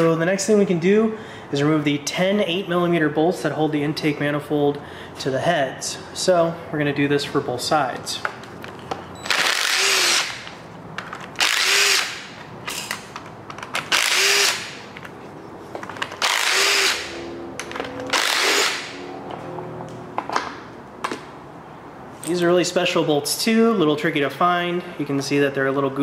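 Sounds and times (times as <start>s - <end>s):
cordless driver running: 9.2s - 10.5s, 11.4s - 12.3s, 13.8s - 14.8s, 16.0s - 17.1s, 18.0s - 19.0s.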